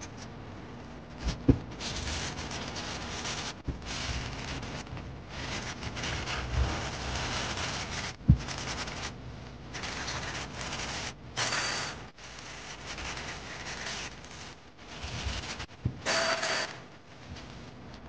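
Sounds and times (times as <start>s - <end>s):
air hiss from blow nozzle: 11.4s - 12.0s, 16.0s - 16.8s.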